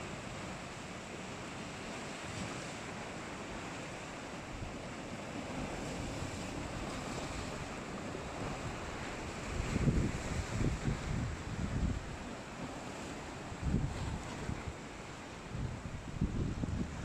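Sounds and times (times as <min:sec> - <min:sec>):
wind buffeting microphone: 0:08.4 - 0:12.2, 0:13.6 - 0:14.8, 0:15.5 - 0:17.0.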